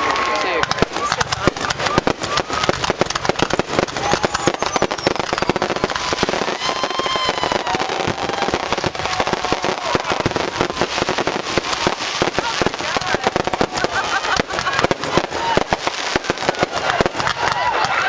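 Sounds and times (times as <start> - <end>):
firework whistling: 0.0 - 17.6
fireworks bangs and crackling: 0.0 - 18.0.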